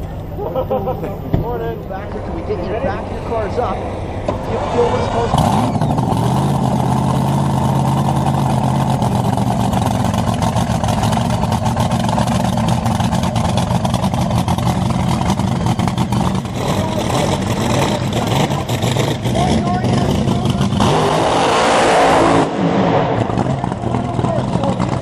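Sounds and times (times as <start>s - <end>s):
dragster engine idling roughly: 4.8s - 20.9s, 23.2s - 25.0s.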